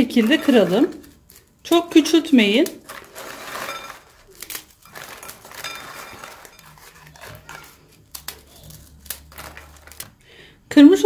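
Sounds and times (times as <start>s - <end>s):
biscuits snapping and crumbling: 0.0s - 10.3s.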